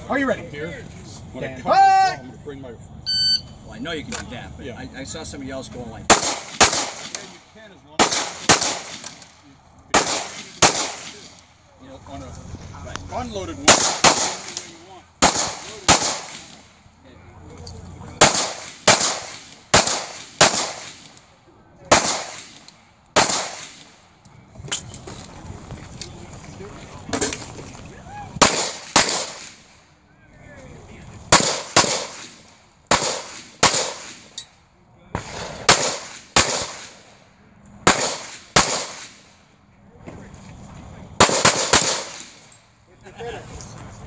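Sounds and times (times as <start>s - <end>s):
pistol shots echoing: 6.1s - 7.4s, 8.0s - 9.3s, 9.9s - 11.3s, 13.7s - 16.6s, 18.2s - 21.2s, 21.9s - 22.6s, 23.2s - 23.9s, 28.4s - 29.6s, 31.3s - 34.2s, 35.2s - 37.0s, 37.8s - 39.2s, 41.2s - 42.4s
handgun shots echoing: 8.0s - 9.3s, 10.0s - 11.3s, 18.2s - 21.2s, 31.4s - 32.3s, 37.9s - 39.2s, 41.2s - 42.4s.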